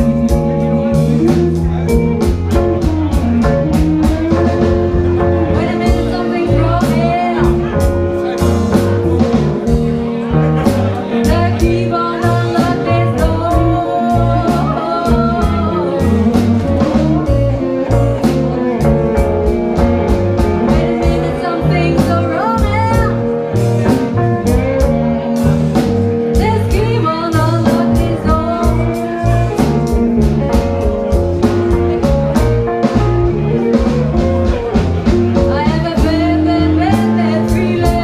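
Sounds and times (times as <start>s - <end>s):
bass guitar: 0.0s - 38.0s
drum kit steady beat: 0.0s - 38.0s
electric guitar: 0.0s - 38.0s
keyboard: 0.0s - 38.0s
woman singing lead: 4.0s - 9.4s, 11.0s - 19.6s, 20.4s - 23.5s, 26.2s - 30.0s, 35.3s - 38.0s.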